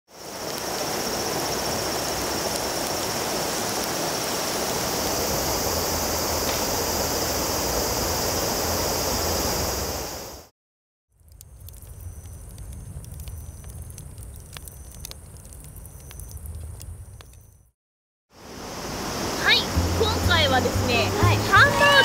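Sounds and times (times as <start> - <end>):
river water rushing: 0.1 - 10.4, 18.4 - 22.0
high-pitched hiss: 0.1 - 10.5.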